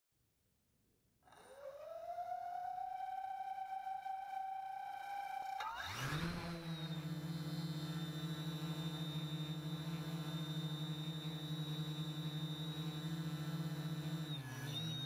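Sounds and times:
quadcopter motors humming: 0:05.0 - 0:15.0.

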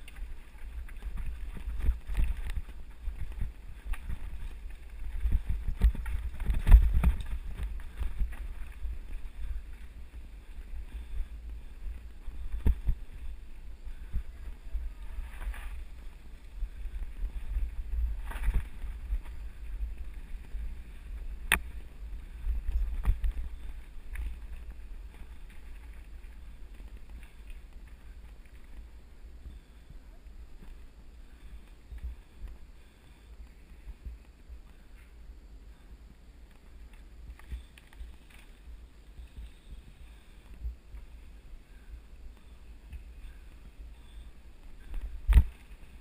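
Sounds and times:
bike knocking and rattling: 0:00.0 - 0:29.9
tyres on dirt: 0:00.0 - 0:35.2
wind on microphone: 0:00.0 - 0:46.0.

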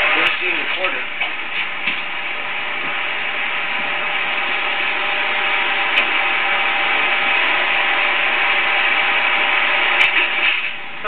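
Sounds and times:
film projector running: 0:00.0 - 0:11.0.

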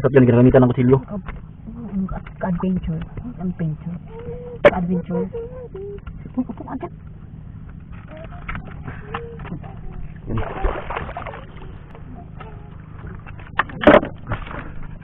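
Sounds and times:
steady low hum: 0:00.0 - 0:15.0
water splash: 0:10.2 - 0:11.9.

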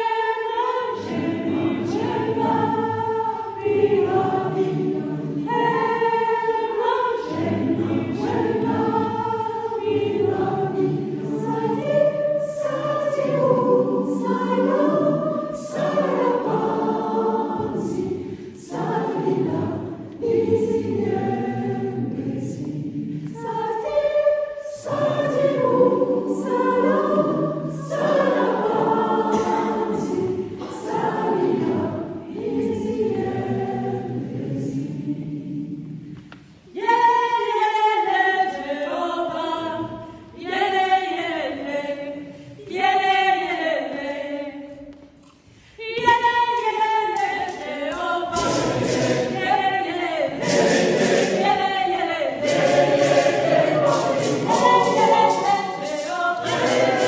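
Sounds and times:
women's choir singing: 0:00.0 - 0:57.0.

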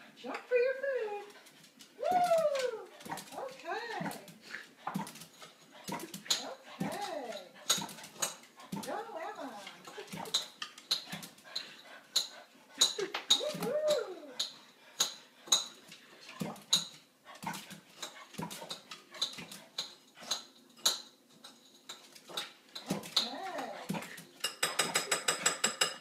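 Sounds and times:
dog whining: 0:13.3 - 0:14.5
dishes clinking at a sink: 0:18.6 - 0:26.0.

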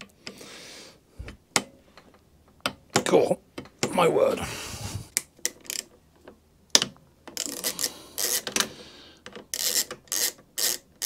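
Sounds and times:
ratcheting hand tool clicking: 0:05.4 - 0:05.9, 0:06.8 - 0:10.8.

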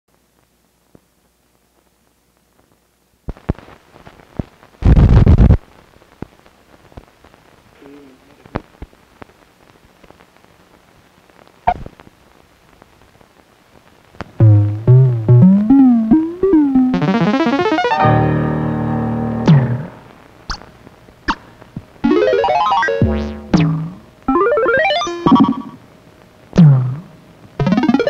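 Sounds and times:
old film crackle and pops: 0:00.1 - 0:18.2, 0:19.4 - 0:28.0
sliding electronic music notes: 0:14.4 - 0:20.1, 0:22.0 - 0:25.8, 0:26.6 - 0:28.0.

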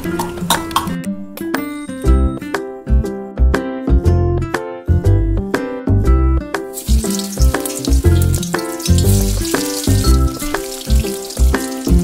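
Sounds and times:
upbeat background music: 0:00.0 - 0:12.0
potatoes sizzling in hot oil: 0:06.7 - 0:12.0.

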